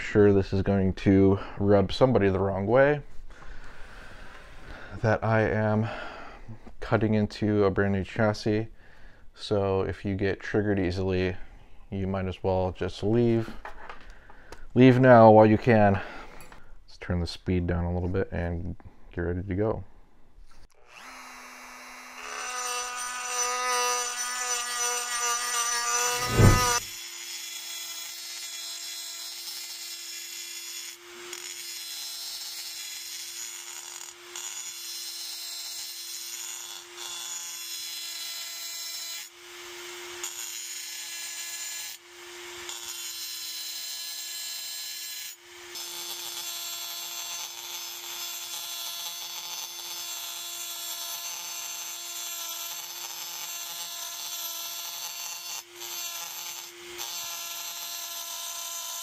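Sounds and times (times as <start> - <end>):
rotary tool whining: 20.7 - 27.0
grinding bit cutting metal: 20.9 - 32.1.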